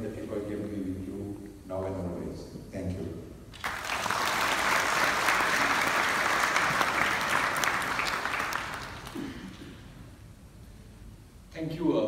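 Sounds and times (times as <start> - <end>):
audience applauding: 3.6 - 9.6.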